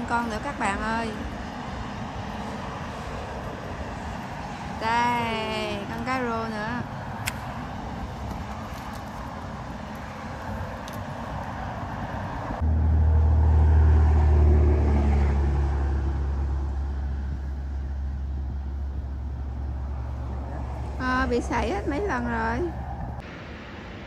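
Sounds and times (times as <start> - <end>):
passing vehicle engine rumble: 0.0 - 24.0
outdoor background hiss: 23.2 - 24.0.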